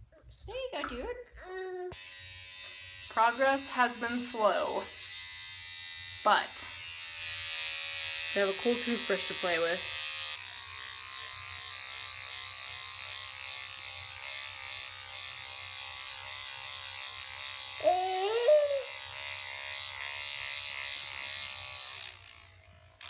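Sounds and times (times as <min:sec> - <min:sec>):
electric toothbrush buzzing: 0:01.8 - 0:23.0
baby squealing: 0:17.8 - 0:18.9.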